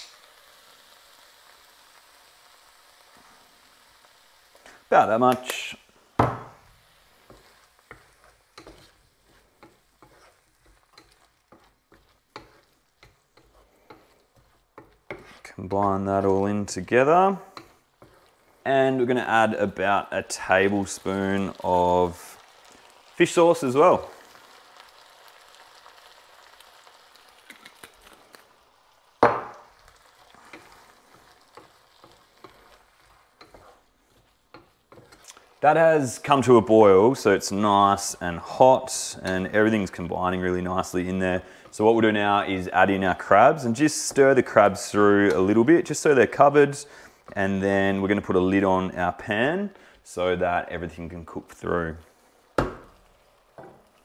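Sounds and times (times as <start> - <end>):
food sizzling: 0.0 - 54.0
spatula scraping a frying pan: 6.7 - 18.7, 29.9 - 35.6.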